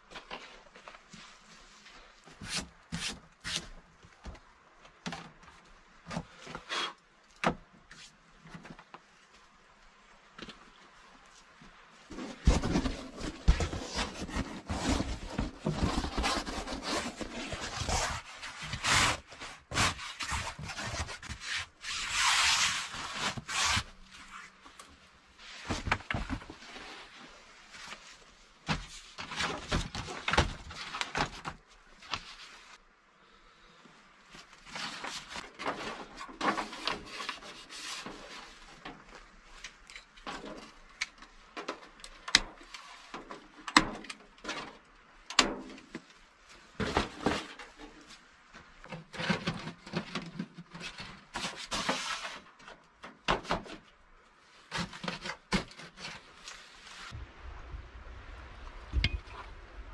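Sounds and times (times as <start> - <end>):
fabric and gear rustling: 10.3 - 32.8.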